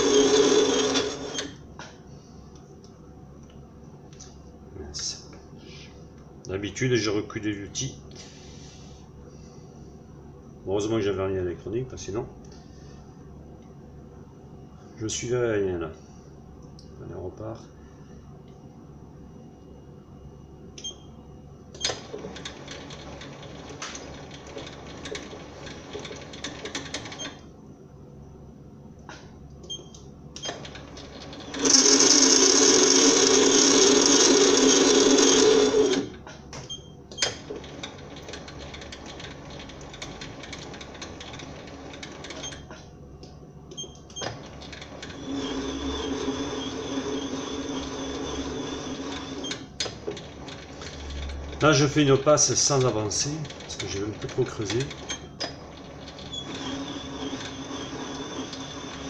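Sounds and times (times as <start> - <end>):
lathe whirring: 0.0 - 1.6, 30.4 - 36.2, 44.2 - 59.0.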